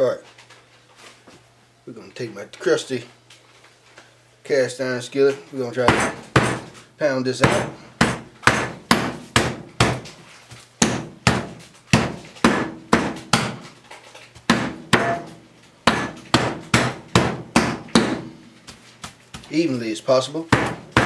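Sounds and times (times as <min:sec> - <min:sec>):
skillet pounding meat on board: 0:05.8 - 0:06.8, 0:07.4 - 0:10.2, 0:10.8 - 0:13.7, 0:14.4 - 0:18.4, 0:20.4 - 0:21.0.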